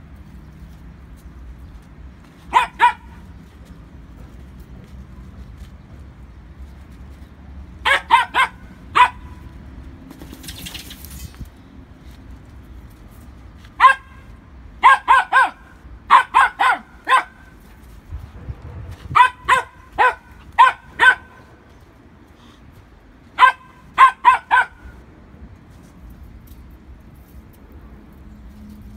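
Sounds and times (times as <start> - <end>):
dog barking: 2.5 - 3.2, 7.8 - 9.4, 13.8 - 17.5, 19.2 - 21.5, 23.4 - 24.9.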